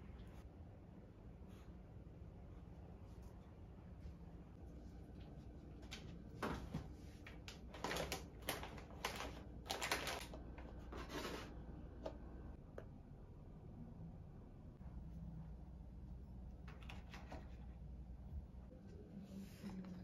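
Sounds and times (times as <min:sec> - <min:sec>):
plastic packets rustling: 0:07.3 - 0:11.3.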